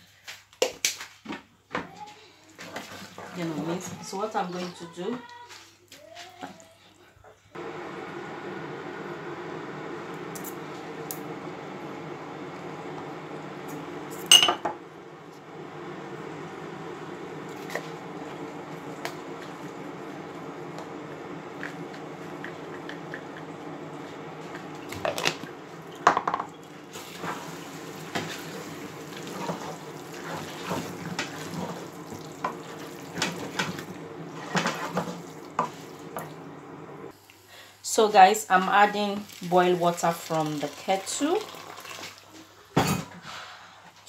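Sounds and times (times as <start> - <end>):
wooden spoon stirring in a pot: 2.5 - 6.6, 15.2 - 36.4.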